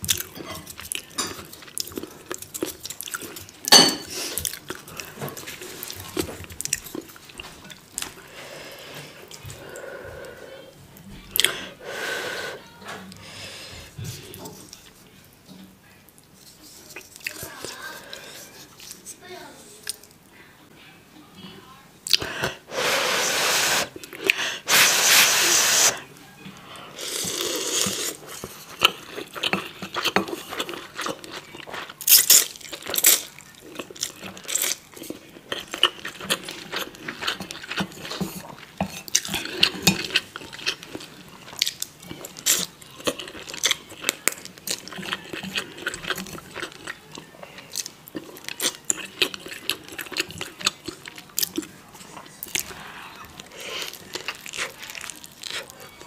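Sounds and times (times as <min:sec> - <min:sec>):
slurping noodles: 0:22.2 - 0:26.0, 0:27.0 - 0:29.0
wet chewing and lip smacking: 0:27.2 - 0:56.0.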